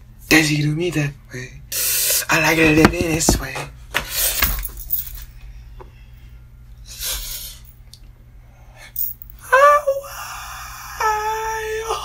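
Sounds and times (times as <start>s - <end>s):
rustling of person moving: 2.6s - 3.7s.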